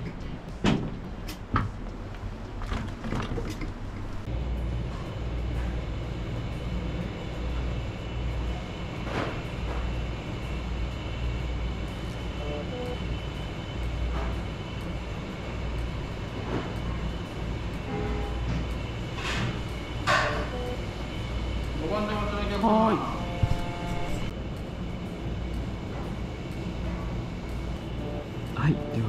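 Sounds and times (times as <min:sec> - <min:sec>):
low room rumble: 0:00.0 - 0:29.0
faint high whine: 0:10.4 - 0:14.3, 0:19.2 - 0:24.4, 0:27.7 - 0:29.0.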